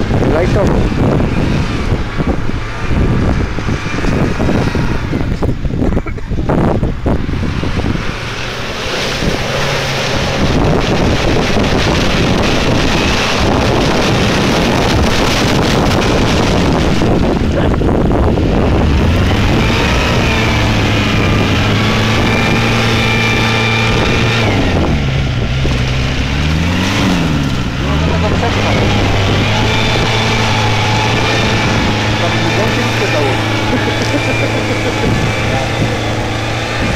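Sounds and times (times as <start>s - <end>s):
engine revving hard: 6.5s - 36.9s
mud and water splashing: 7.4s - 36.9s.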